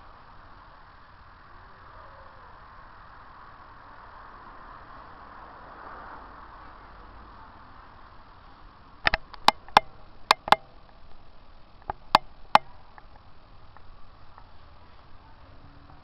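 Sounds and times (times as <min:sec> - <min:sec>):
sharp clicks: 0:09.0 - 0:10.7, 0:11.8 - 0:14.5.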